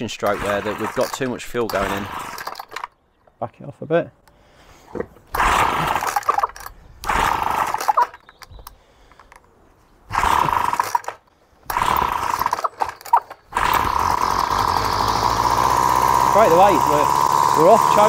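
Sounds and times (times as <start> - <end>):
strimmer engine starting and running: 0.0 - 2.9, 5.3 - 8.2, 10.1 - 18.0
pull-start cord: 0.0 - 3.0, 5.3 - 9.4, 10.2 - 18.0.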